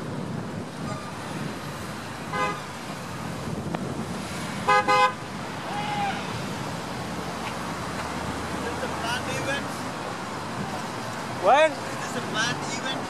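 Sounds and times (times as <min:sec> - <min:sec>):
traffic rush: 0:00.0 - 0:13.0
wind: 0:00.0 - 0:13.0
vehicle horn tooting: 0:02.3 - 0:02.6, 0:04.6 - 0:05.2.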